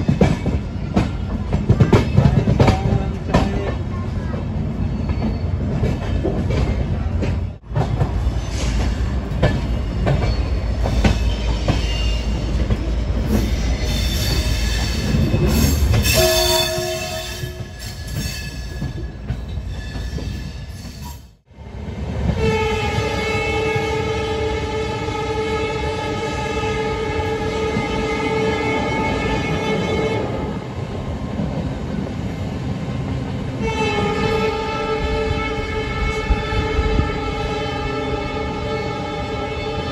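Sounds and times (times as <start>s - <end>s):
train rumble and rattle: 0.0s - 39.9s
train horn blast: 16.0s - 17.8s, 22.4s - 30.6s, 33.6s - 39.9s.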